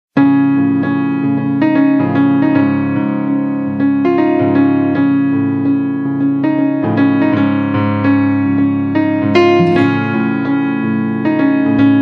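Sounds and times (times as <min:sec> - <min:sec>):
piano music: 0:09.0 - 0:12.0.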